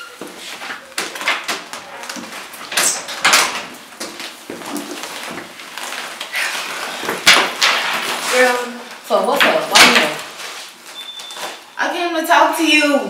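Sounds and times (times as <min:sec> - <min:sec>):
clothing and handbag rustling: 0:00.0 - 0:07.2, 0:07.9 - 0:11.8
footsteps on wooden stairs: 0:00.2 - 0:07.4.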